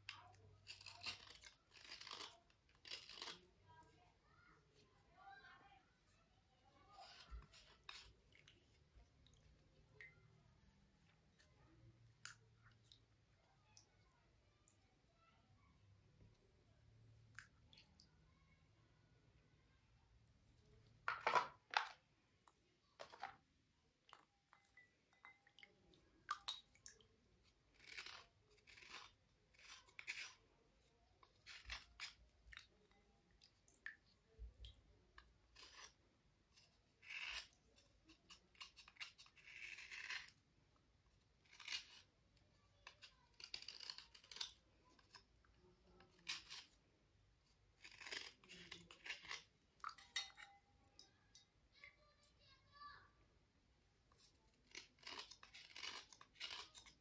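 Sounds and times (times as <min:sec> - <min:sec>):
slate cubes scraping: 0:00.7 - 0:03.6, 0:27.7 - 0:30.4, 0:35.5 - 0:40.5, 0:41.4 - 0:42.1, 0:42.8 - 0:45.3, 0:46.0 - 0:46.8, 0:47.7 - 0:49.6, 0:54.6 - 0:57.0.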